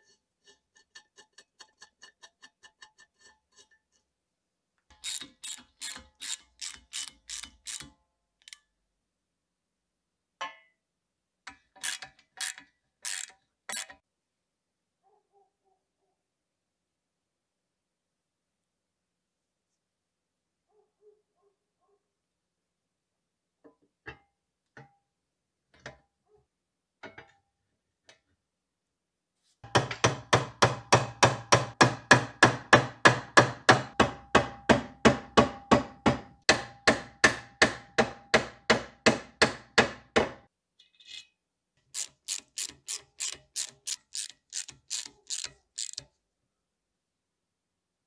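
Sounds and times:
ratcheting screwdriver clicking: 0:04.9 - 0:08.6, 0:11.8 - 0:14.0, 0:42.0 - 0:46.1.

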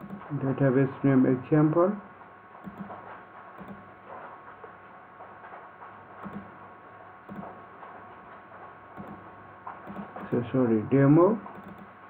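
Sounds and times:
computer mouse clicking: 0:00.0 - 0:00.3, 0:02.6 - 0:03.0, 0:03.6 - 0:03.8, 0:06.2 - 0:06.5, 0:07.3 - 0:07.5, 0:09.0 - 0:09.2, 0:09.8 - 0:10.4, 0:11.5 - 0:11.9.

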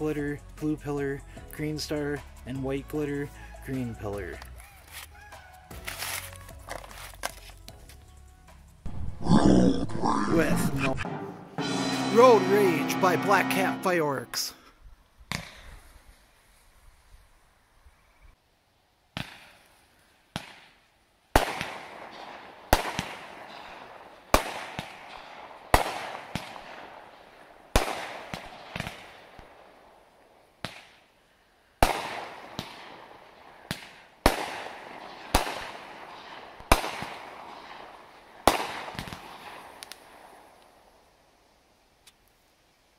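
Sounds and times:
firework cake shots firing: 0:21.4 - 0:22.1, 0:22.7 - 0:23.3, 0:24.4 - 0:26.8, 0:31.8 - 0:33.0, 0:33.7 - 0:35.8, 0:36.6 - 0:37.3, 0:38.5 - 0:40.0.

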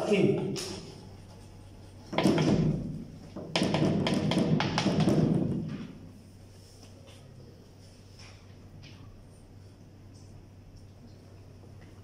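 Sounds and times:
knocks and thuds: 0:02.1 - 0:05.9.

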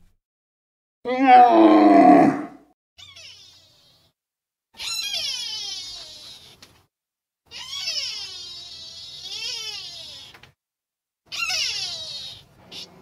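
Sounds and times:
animal high-pitched cries: 0:01.1 - 0:04.1, 0:04.8 - 0:06.6, 0:07.5 - 0:10.4, 0:11.3 - 0:13.0.

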